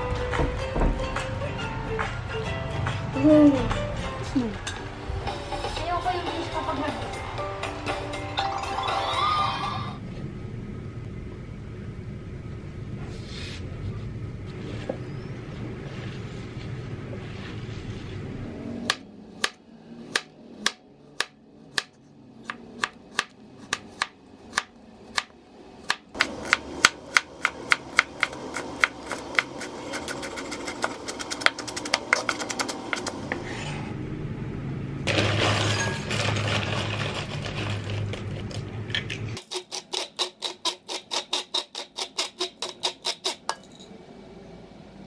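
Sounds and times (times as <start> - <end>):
low steady hum: 10.0 - 19.4.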